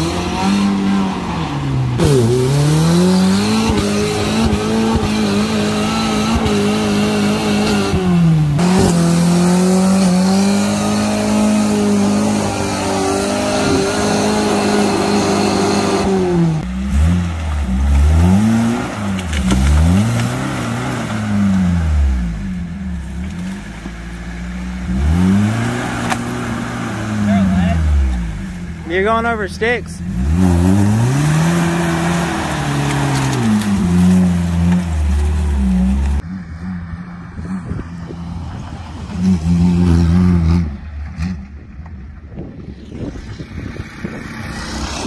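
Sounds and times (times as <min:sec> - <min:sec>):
jeep engine revving: 0:00.0 - 0:45.0.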